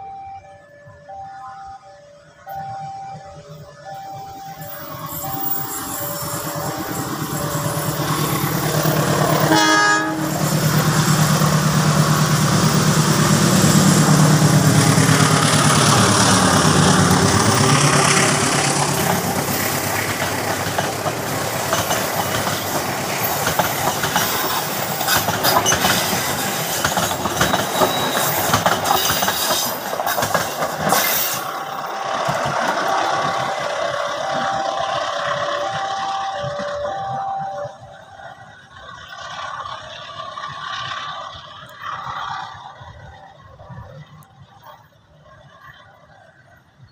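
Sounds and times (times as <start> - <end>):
train horn blast: 0.8 - 20.0, 31.8 - 38.4
locomotive engine running: 1.7 - 45.5
train wheels clacking on rails: 4.6 - 45.8.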